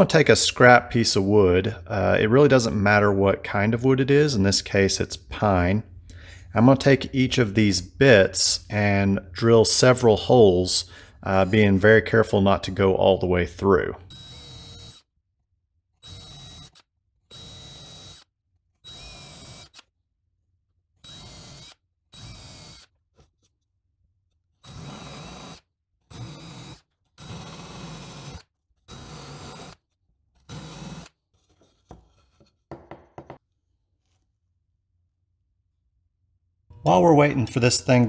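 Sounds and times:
electric drill boring into wood: 14.1s - 15.0s, 16.0s - 19.8s, 21.0s - 22.9s, 24.6s - 29.8s.

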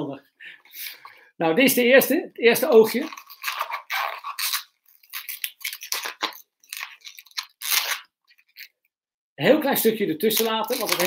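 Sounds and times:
rubber balloon rubbing: 2.8s - 6.4s.

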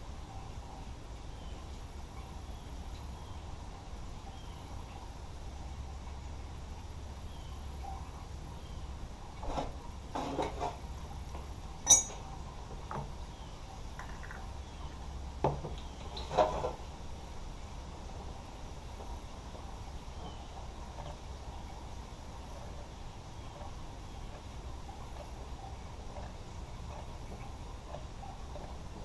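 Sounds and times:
steady low hum: 0.0s - 29.0s
metallic clinks of hand tools: 11.8s - 12.2s.

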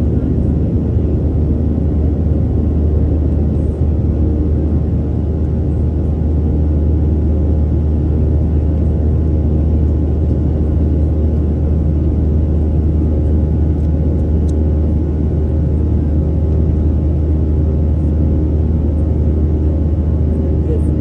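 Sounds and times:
jet engine rumble in cabin: 0.0s - 21.0s.

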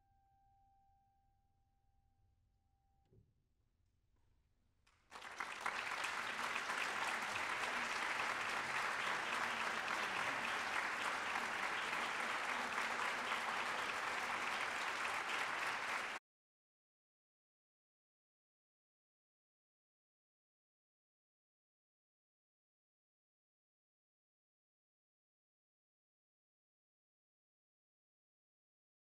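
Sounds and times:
audience applauding: 4.9s - 16.2s.

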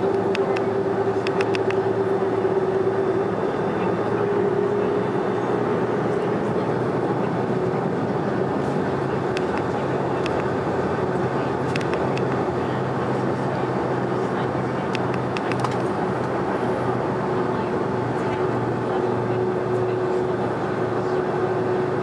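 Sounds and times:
aircraft cabin rumble and hum: 0.0s - 22.0s.

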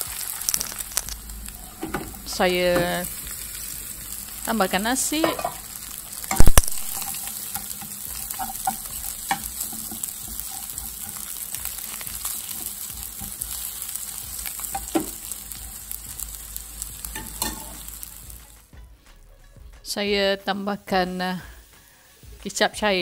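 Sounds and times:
fried rice sizzling in a wok: 0.0s - 18.8s, 20.8s - 23.0s
metal spatula scraping a wok: 0.2s - 15.4s.

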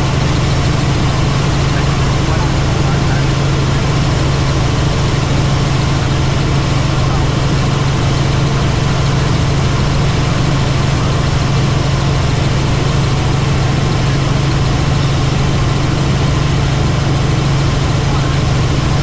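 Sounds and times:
helicopter engine and rotor noise: 0.0s - 19.0s.

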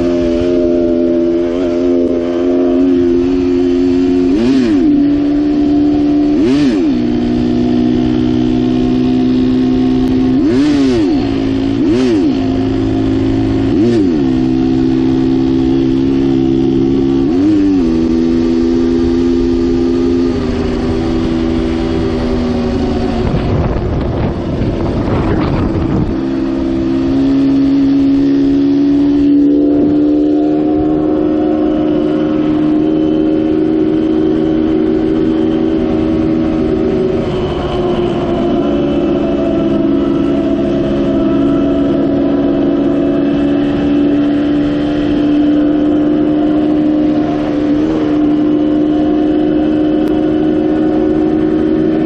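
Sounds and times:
dirt bike engine running: 0.0s - 52.0s
rushing noise: 16.9s - 49.9s.

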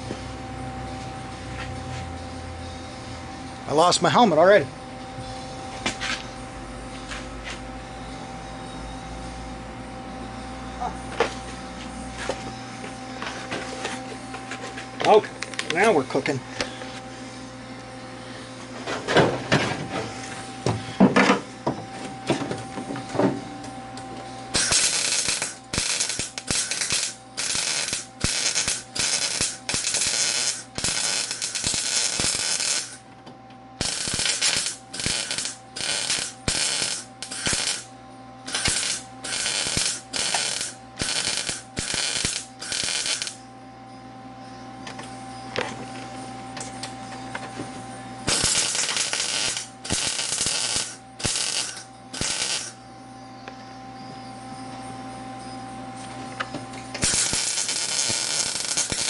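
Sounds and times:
welder crackling: 24.5s - 33.1s, 33.8s - 43.4s, 48.2s - 52.8s, 56.9s - 59.0s.

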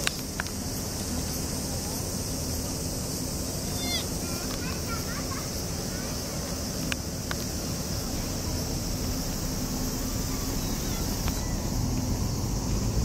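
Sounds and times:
low rumble: 7.9s - 13.0s.

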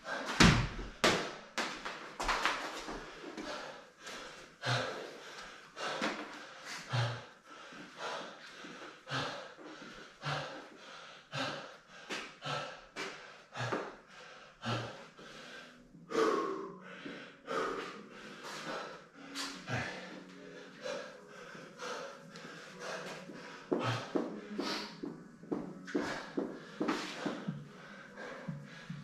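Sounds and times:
man breathing heavily: 0.0s - 1.4s, 2.2s - 29.0s.

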